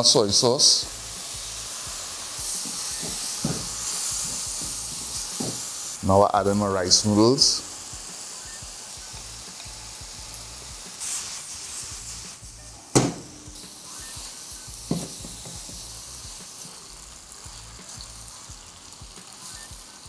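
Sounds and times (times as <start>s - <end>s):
food sizzling in a wok: 0.0s - 20.0s
sharp knock: 13.0s - 13.6s.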